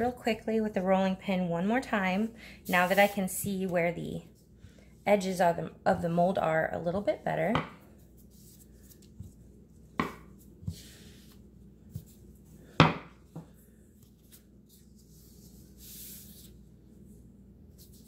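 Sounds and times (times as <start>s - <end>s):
hands rubbing fondant in a mould: 2.6s - 4.0s, 5.9s - 18.0s.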